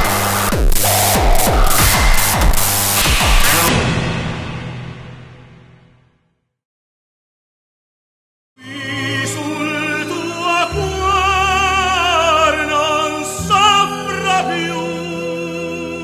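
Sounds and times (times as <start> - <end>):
sustained low accompaniment: 0.0 - 4.5
operatic singing: 8.6 - 16.0.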